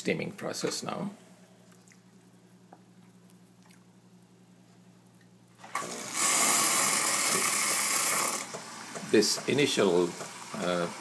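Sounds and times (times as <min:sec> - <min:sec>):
man talking: 0:00.0 - 0:01.2, 0:09.0 - 0:11.0
water spitting from spout: 0:05.6 - 0:08.6
frother humming: 0:05.6 - 0:11.0.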